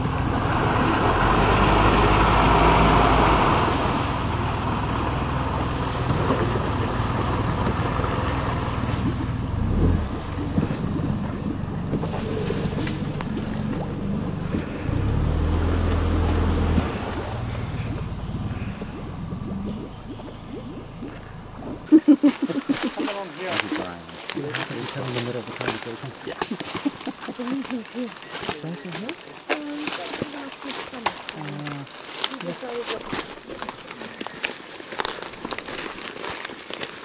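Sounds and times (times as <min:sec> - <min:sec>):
wind rumbling on microphone: 0:03.8 - 0:22.9.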